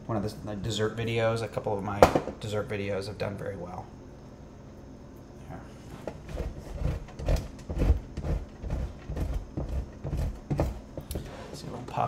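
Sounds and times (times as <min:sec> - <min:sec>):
cheese scraping on box grater: 0:06.2 - 0:11.3.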